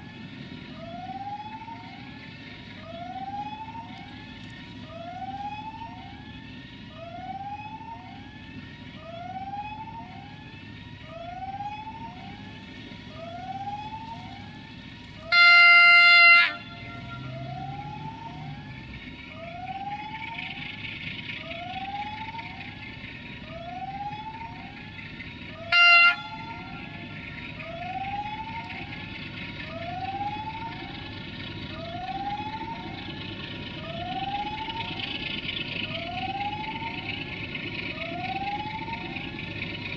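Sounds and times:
train rumble: 11.0s - 39.9s
locomotive horn: 15.0s - 17.9s, 25.4s - 28.9s.

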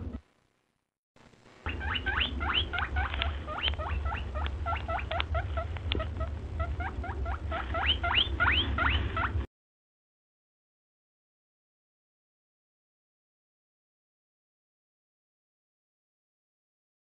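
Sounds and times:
steady low hum: 0.0s - 9.5s
small animal squeaking: 1.7s - 9.4s.

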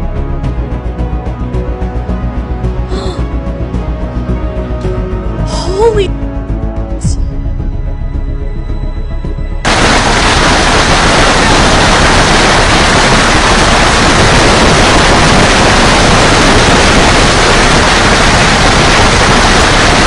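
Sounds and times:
heavy rain pounding: 9.7s - 20.0s.

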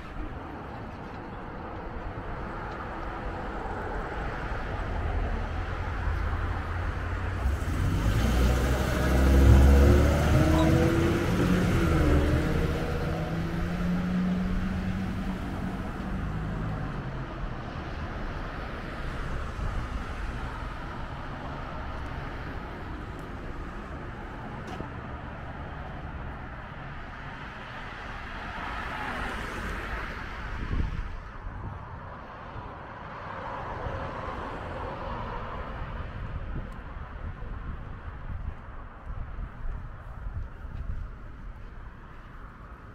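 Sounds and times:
pickup truck driving past: 7.0s - 16.8s.

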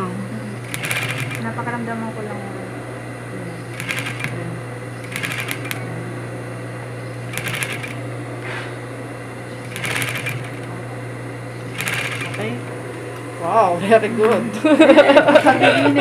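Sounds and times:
sewing machine motor hum: 0.0s - 16.0s
sewing machine needle clatter: 0.6s - 1.5s, 3.8s - 4.4s, 5.0s - 5.8s, 7.3s - 8.0s, 9.7s - 10.7s, 11.7s - 12.6s.

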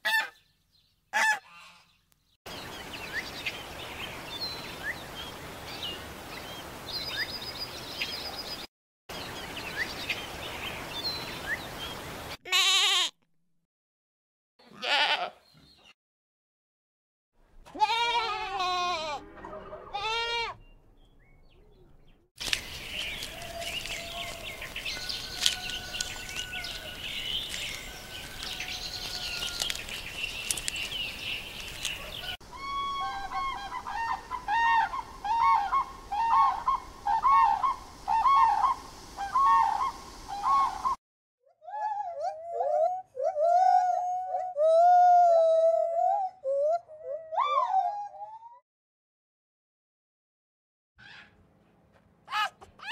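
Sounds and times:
goats bleating: 12.5s - 13.1s, 14.7s - 15.4s, 17.7s - 19.2s
gibbon calling: 32.5s - 40.8s.

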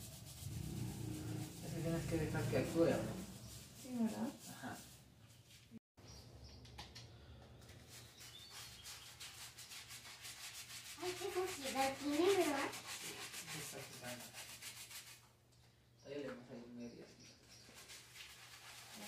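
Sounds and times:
brush scrubbing tiles: 0.0s - 5.8s, 7.8s - 15.2s, 17.4s - 19.0s.

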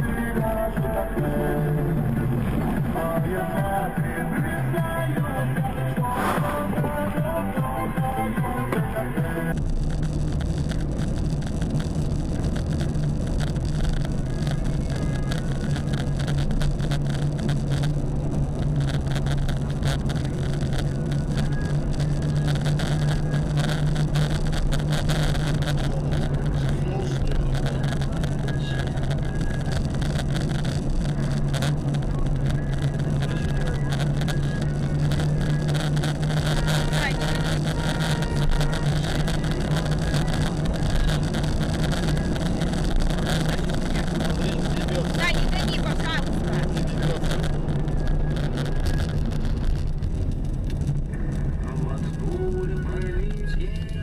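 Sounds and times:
car engine drone and road noise: 0.0s - 54.0s.

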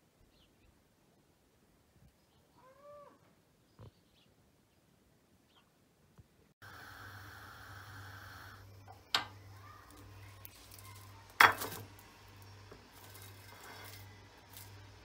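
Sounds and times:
gas burner flame hissing: 6.6s - 10.7s
eggplant clattering on metal: 10.7s - 12.0s.

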